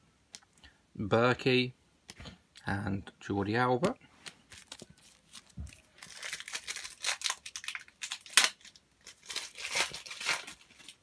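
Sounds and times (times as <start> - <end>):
wrapper crinkling and tearing: 4.5 - 11.0.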